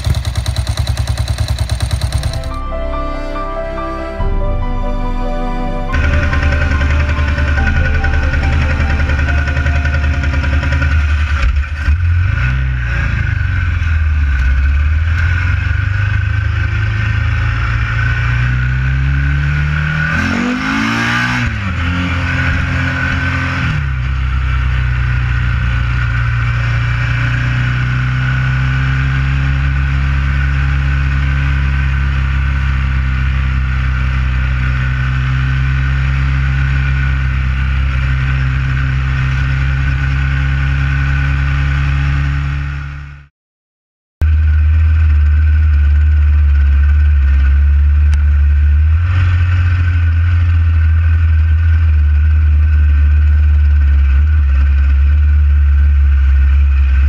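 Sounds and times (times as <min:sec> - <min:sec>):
motorcycle engine revving: 0:00.0 - 0:02.6, 0:05.9 - 0:43.2, 0:44.2 - 0:57.0.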